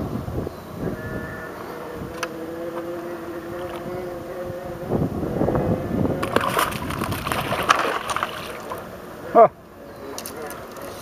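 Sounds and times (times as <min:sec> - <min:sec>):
fish splashing in water: 0:06.2 - 0:08.9.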